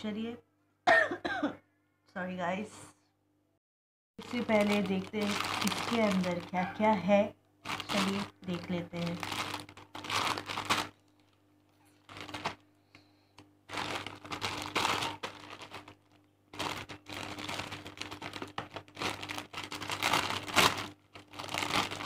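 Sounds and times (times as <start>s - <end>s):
plastic packet crinkling: 4.2s - 6.9s, 7.6s - 22.0s.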